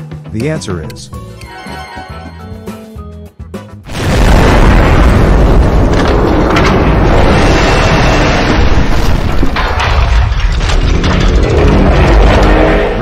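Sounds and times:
explosions booming and rumbling: 3.8 - 13.0
sharp explosion cracks: 3.8 - 13.0.

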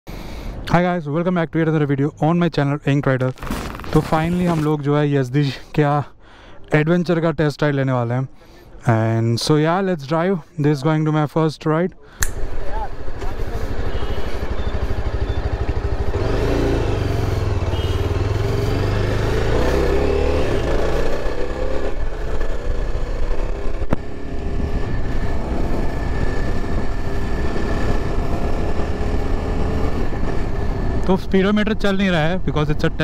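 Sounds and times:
sharp click: 12.2 - 12.5
motorcycle engine running: 12.3 - 31.1.

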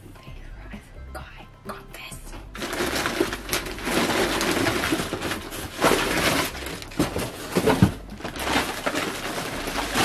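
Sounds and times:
paper and plastic bag rustling: 2.6 - 10.0.

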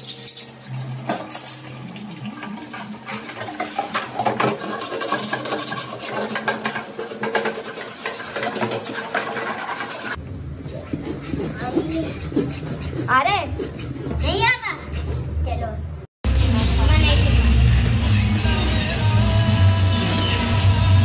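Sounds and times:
tap water running into sink: 0.0 - 10.1
dishes and utensils clattering: 0.0 - 10.2.

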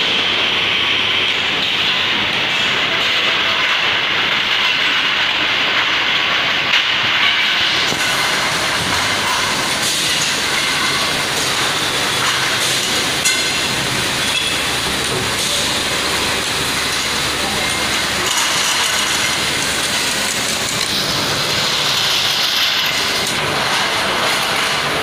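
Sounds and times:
dispensing machine running: 0.0 - 25.0.

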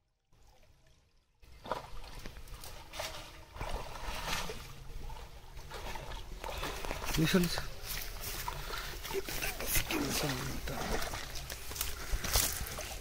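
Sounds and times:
water streaming off fishing net: 1.5 - 13.0.

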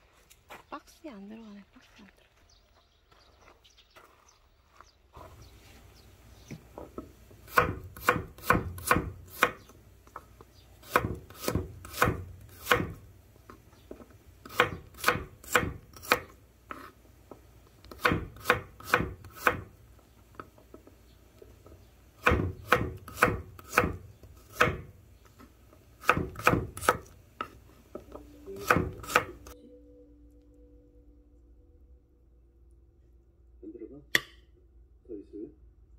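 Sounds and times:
knife chopping on wooden board: 7.4 - 16.9, 17.9 - 19.7, 22.2 - 29.6.

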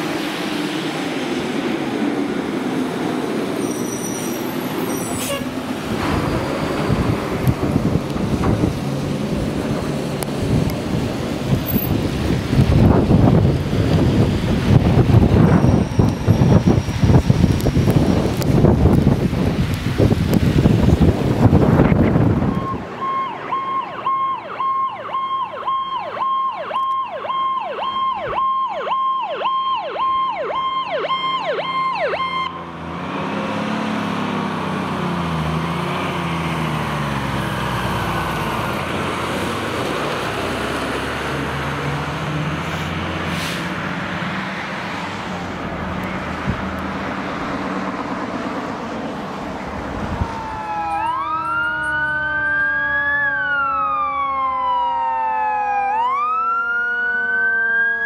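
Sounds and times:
truck engine and road noise: 0.0 - 58.0
rising siren wail: 4.4 - 43.3, 43.9 - 58.0
fast electronic siren: 21.8 - 32.6, 50.0 - 58.0.

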